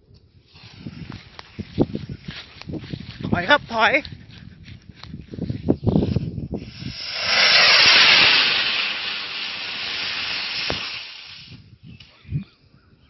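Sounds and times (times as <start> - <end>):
firework rocket rushing hiss: 0.5 - 1.5, 6.0 - 11.8.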